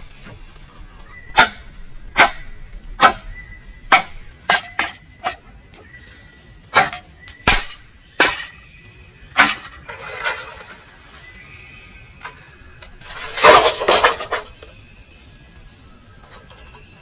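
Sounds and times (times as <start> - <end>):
rasping scrape: 9.4 - 11.0, 12.9 - 14.6.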